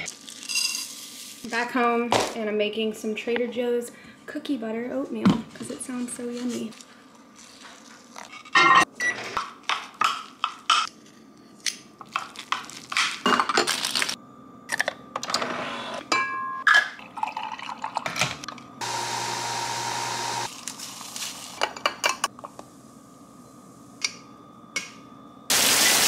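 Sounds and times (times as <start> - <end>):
coffee machine whirring: 18.8 - 20.5.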